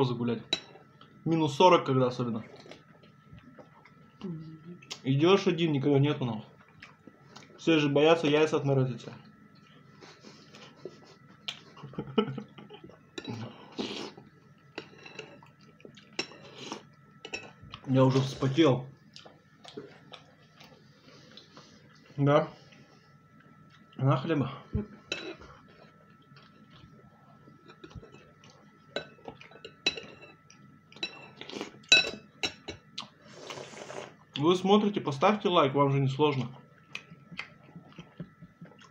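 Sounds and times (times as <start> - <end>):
metal spoon clinking ceramic bowl: 31.0 - 32.8
wet chewing and lip smacking: 36.4 - 38.9.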